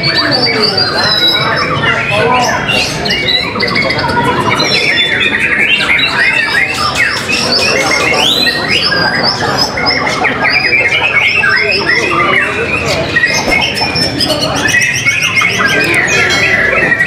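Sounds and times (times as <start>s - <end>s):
bird singing whistled trills: 4.6s - 17.0s.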